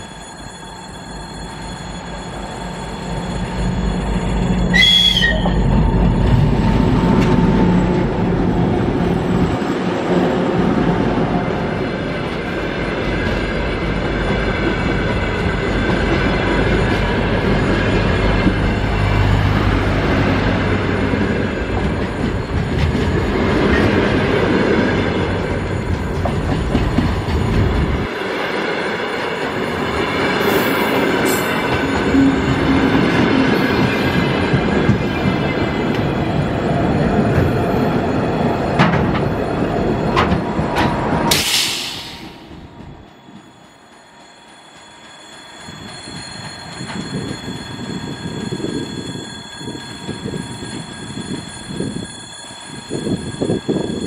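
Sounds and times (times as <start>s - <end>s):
train cars rolling on rails: 0.0s - 54.0s
diesel locomotive rumbling: 1.9s - 28.3s, 29.1s - 43.4s.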